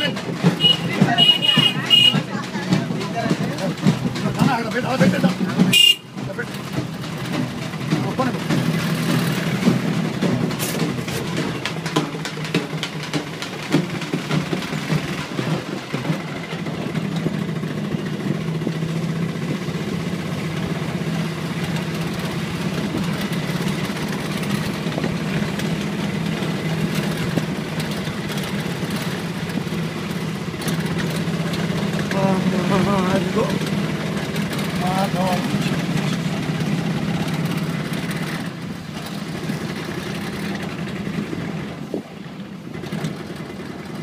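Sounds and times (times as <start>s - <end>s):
knocks and rattles: 0.0s - 44.0s
vehicle engine running: 0.0s - 44.0s.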